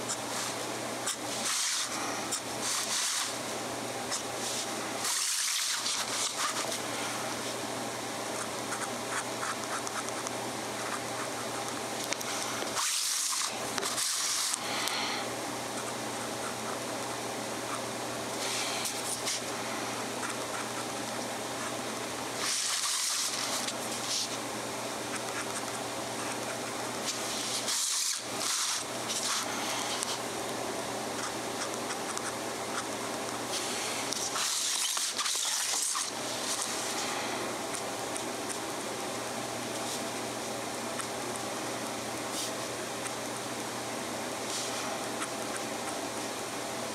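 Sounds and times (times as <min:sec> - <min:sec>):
low hum and hiss: 0:00.0 - 0:46.9
pen nib scratching paper: 0:01.0 - 0:03.4, 0:04.1 - 0:06.8, 0:08.4 - 0:11.7, 0:22.4 - 0:24.3.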